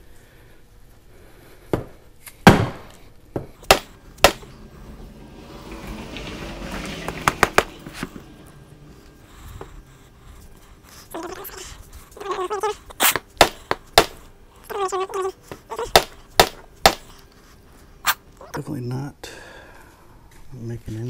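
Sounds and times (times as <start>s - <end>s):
handling noise: 1.7s - 10.6s.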